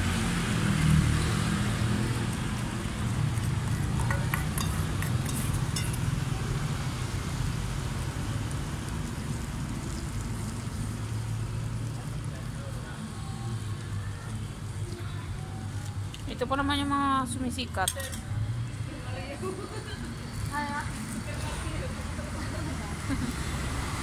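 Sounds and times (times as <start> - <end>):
street traffic rumble: 0.0 - 24.0
metal spoon clinking on steel bowl: 4.0 - 6.1, 17.8 - 18.3.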